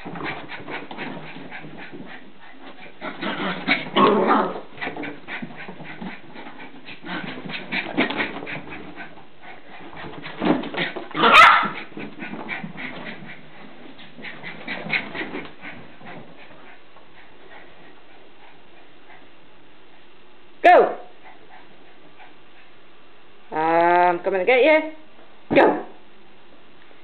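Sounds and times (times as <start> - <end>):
puppy making excited noises: 9.9 - 13.4.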